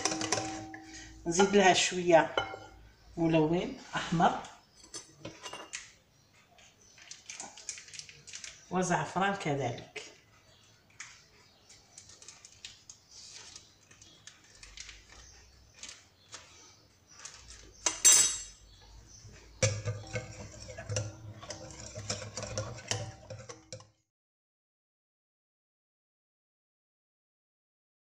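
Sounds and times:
whisk clicking against glass bowl: 0:00.0 - 0:01.0, 0:19.6 - 0:23.9.

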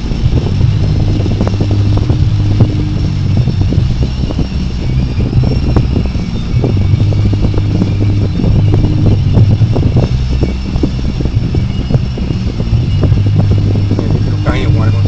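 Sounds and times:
car engine and cabin hum: 0:00.0 - 0:15.0.

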